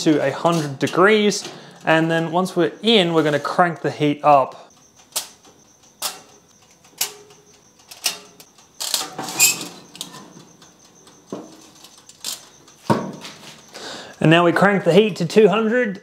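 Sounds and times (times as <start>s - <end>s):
tray scraping on metal rack: 0.0s - 3.8s, 8.0s - 10.6s.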